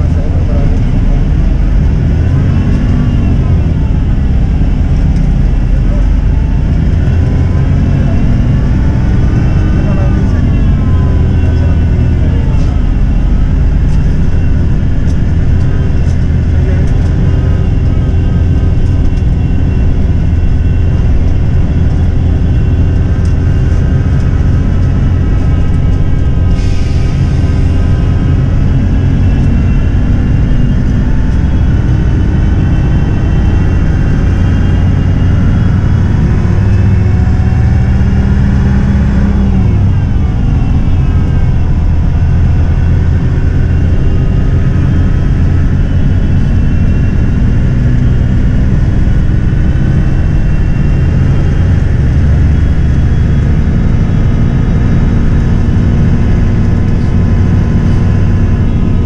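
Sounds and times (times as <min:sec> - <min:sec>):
bus diesel engine accelerating: 0:00.0 - 0:59.0.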